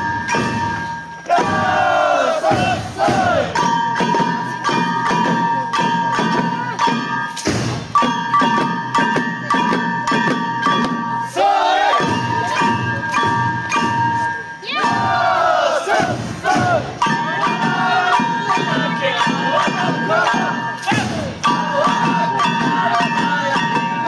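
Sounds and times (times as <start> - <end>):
dancers shouting: 1.2 - 3.6, 11.3 - 12.7, 14.6 - 23.8.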